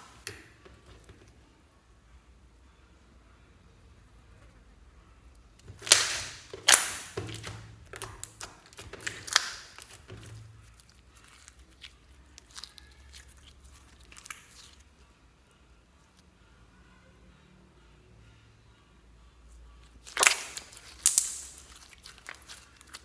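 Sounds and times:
slime squelching and popping: 5.6 - 14.8, 20.0 - 23.0
slime crackling clicks: 5.7 - 10.0, 20.1 - 22.9.

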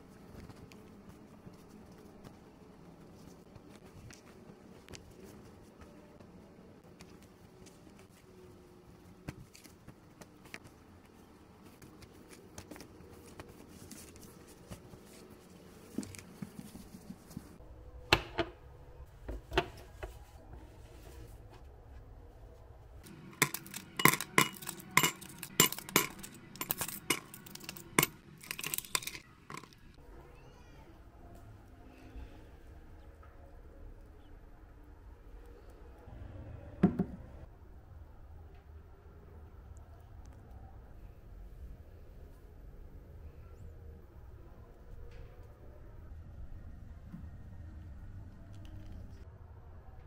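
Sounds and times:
dishes and cutlery clinking: 23.1 - 29.9.

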